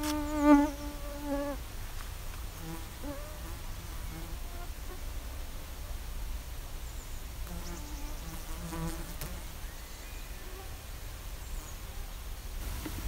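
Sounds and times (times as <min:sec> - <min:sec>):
flies buzzing: 0:00.0 - 0:01.6, 0:07.4 - 0:09.6.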